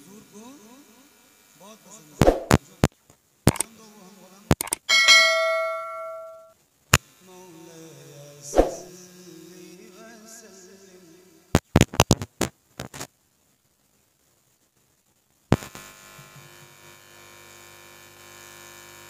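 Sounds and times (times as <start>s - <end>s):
sharp clicks: 3.5s - 3.7s, 4.5s - 4.9s
man singing through loudspeaker: 3.6s - 4.6s, 7.2s - 11.5s
ringing note: 4.9s - 6.5s.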